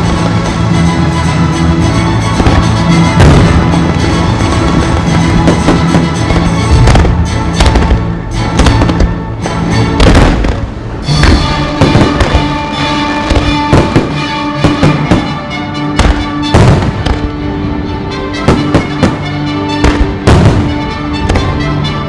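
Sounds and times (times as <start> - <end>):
fireworks bangs: 0.0 - 1.1, 2.3 - 17.4, 18.4 - 21.6
loud music: 0.0 - 22.0.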